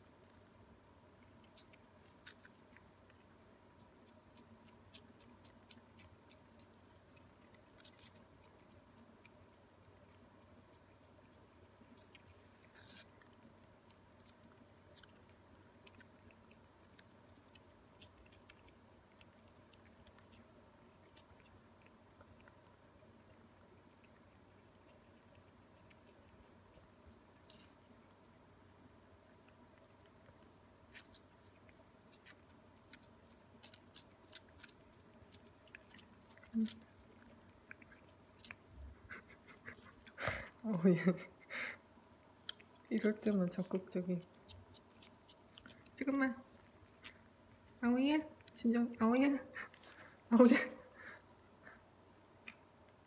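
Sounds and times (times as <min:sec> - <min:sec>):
cats licking wet clicks: 0:00.1 - 0:47.8
scratchy rustle: 0:12.3 - 0:13.2.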